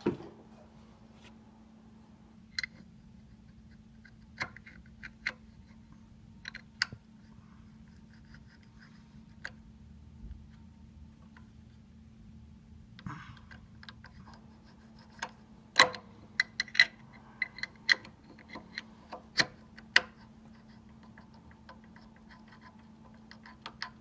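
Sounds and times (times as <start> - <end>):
small metal parts clicking: 15.2 - 20.3.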